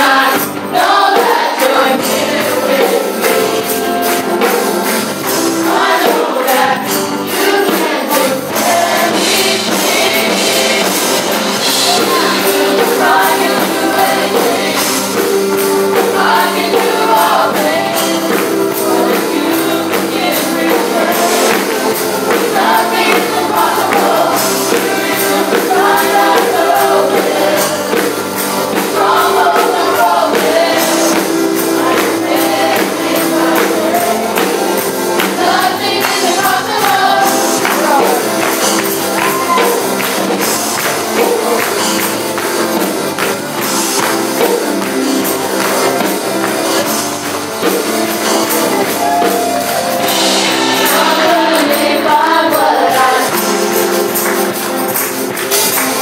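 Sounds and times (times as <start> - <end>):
drums: 0.0 - 56.0
electric keyboard: 0.0 - 56.0
jingling percussion beat: 0.0 - 56.0
voices singing into microphones: 0.0 - 56.0.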